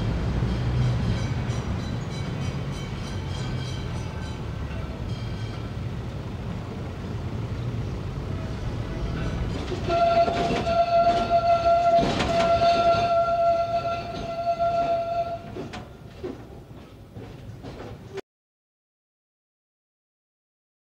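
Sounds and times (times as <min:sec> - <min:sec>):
street traffic rumble: 0:00.0 - 0:18.1
tram running: 0:00.0 - 0:18.2
steady horn tone: 0:09.8 - 0:15.5.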